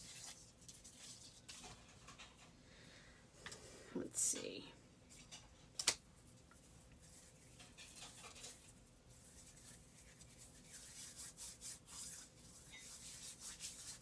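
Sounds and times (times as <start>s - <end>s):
ribbon rustling between hands: 0.0s - 2.2s, 6.0s - 14.0s.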